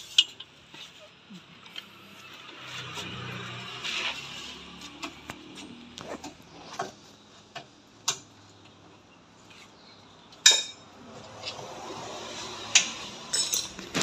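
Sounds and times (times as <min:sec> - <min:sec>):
steady background noise: 0:00.0 - 0:14.0
hand tools clinking on metal: 0:13.3 - 0:13.9.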